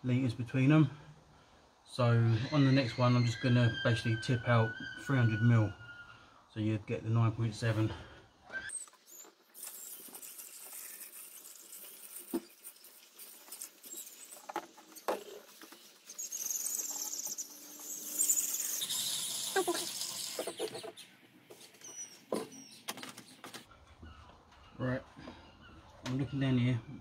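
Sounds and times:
liquid trickling into funnel: 9.4s - 21.0s.

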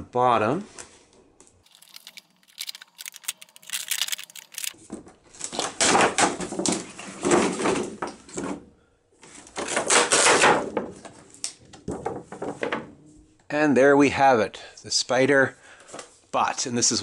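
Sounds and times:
packaging rustling and scraping: 1.7s - 5.8s.

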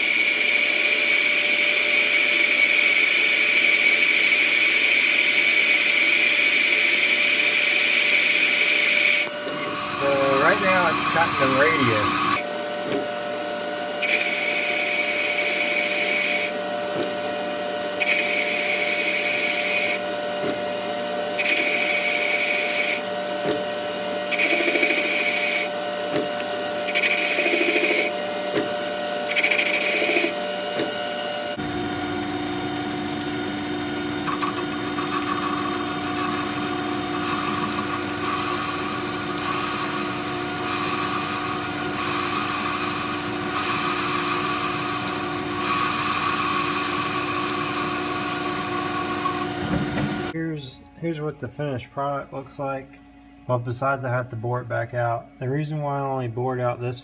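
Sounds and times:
lathe spindle whine: 0.0s - 31.6s, 34.2s - 50.4s
lathe tool cutting metal: 0.0s - 31.7s, 33.4s - 50.3s.

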